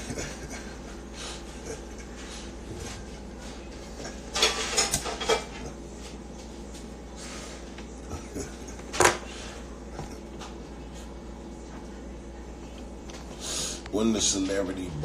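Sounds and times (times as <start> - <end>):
man laughing under his breath: 0.0 - 0.8
faint low hum: 0.0 - 15.0.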